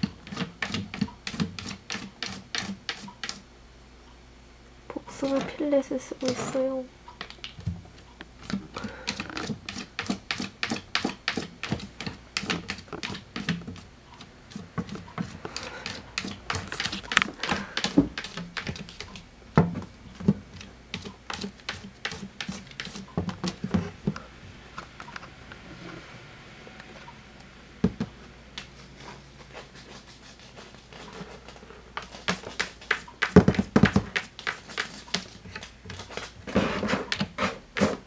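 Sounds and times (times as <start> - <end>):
cat scratching in litter: 0.2 - 3.4, 8.4 - 13.8, 14.5 - 19.1, 28.8 - 38.0.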